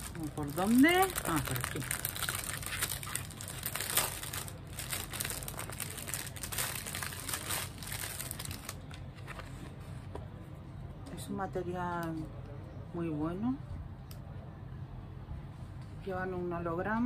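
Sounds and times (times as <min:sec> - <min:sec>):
plastic packet crinkling: 0:00.0 - 0:09.1.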